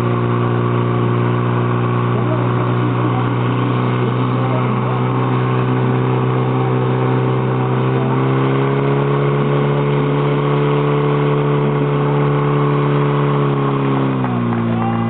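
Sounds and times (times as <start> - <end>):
pump engine running at high revs: 0.0 - 15.0.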